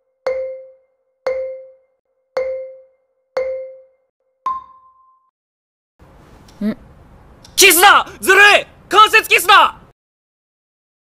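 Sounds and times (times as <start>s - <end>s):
countdown timer tones: 0.0s - 5.3s.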